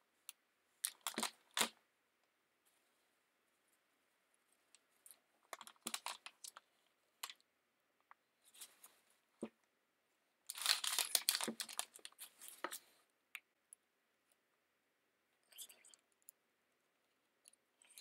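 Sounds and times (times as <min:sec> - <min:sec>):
paper rustling: 0:10.5 - 0:12.9.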